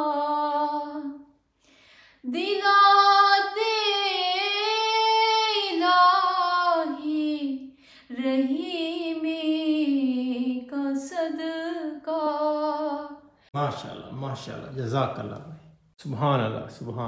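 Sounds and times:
woman singing unaccompanied: 0:00.0 - 0:01.3, 0:02.2 - 0:13.2.

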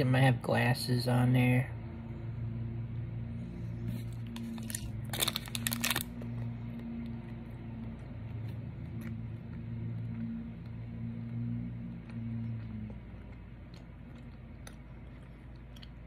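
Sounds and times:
steady low hum: 0:00.0 - 0:16.0
plastic pouch crinkling: 0:04.3 - 0:06.2.

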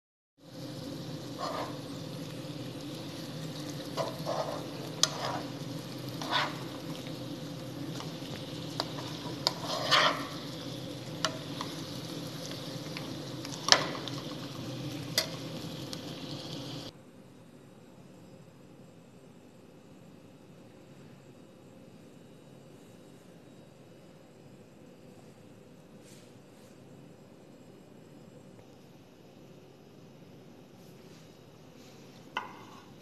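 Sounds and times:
chicken sizzling in a pan: 0:00.4 - 0:16.9
spatula scraping a pan: 0:01.1 - 0:02.2, 0:02.8 - 0:15.6, 0:32.4 - 0:33.0.

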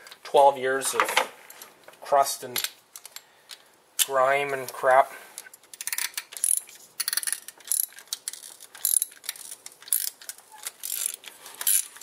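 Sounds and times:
hand ratchet clicking: 0:05.7 - 0:12.0.

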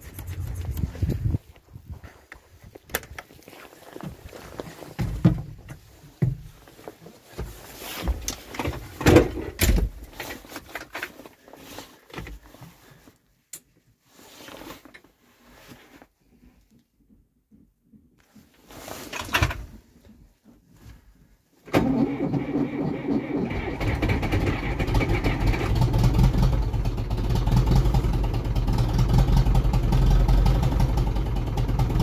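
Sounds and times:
clunks and knocks: 0:04.9 - 0:06.7, 0:07.4 - 0:10.9.

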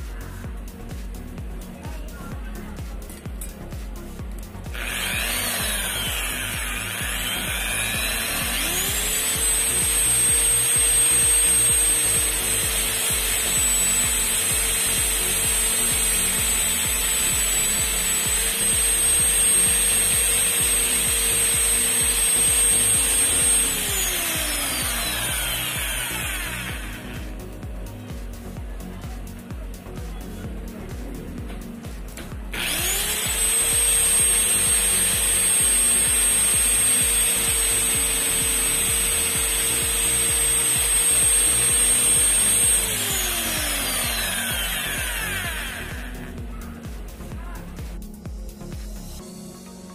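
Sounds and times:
motor whine: 0:00.0 - 0:49.5.

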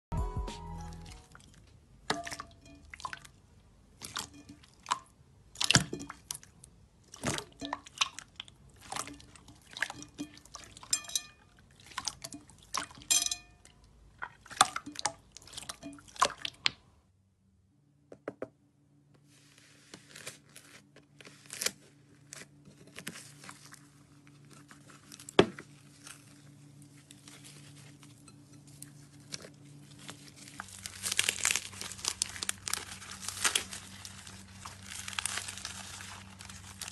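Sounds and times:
low steady hum: 0:00.1 - 0:36.9
slime squelching and popping: 0:30.4 - 0:36.9.

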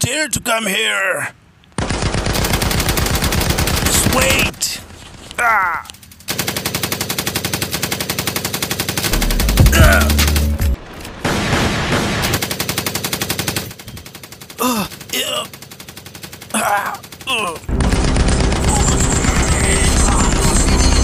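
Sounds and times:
machine-gun bursts: 0:01.8 - 0:04.5, 0:06.1 - 0:10.6, 0:11.2 - 0:21.0
soldiers shouting: 0:05.4 - 0:05.9, 0:09.5 - 0:10.6, 0:16.5 - 0:17.7
deep boom: 0:09.2 - 0:11.6.

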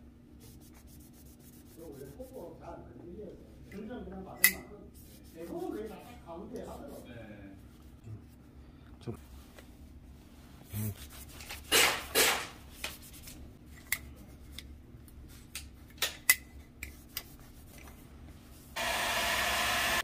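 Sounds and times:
cloth rubbing on rifle rail: 0:00.4 - 0:02.5, 0:04.9 - 0:08.0, 0:12.7 - 0:13.5.

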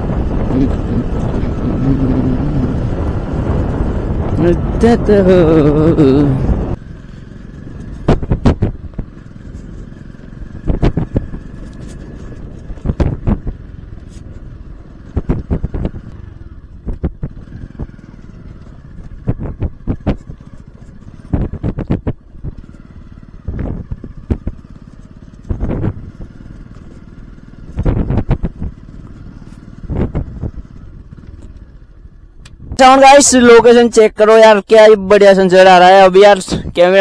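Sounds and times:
motorcycle engine running: 0:00.0 - 0:37.0
motorcycle knocking over bumps: 0:07.7 - 0:13.7, 0:15.1 - 0:31.7.

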